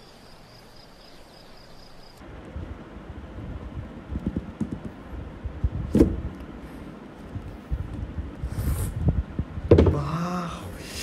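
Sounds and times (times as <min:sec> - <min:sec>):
short airy hiss: 0:08.4 - 0:09.0.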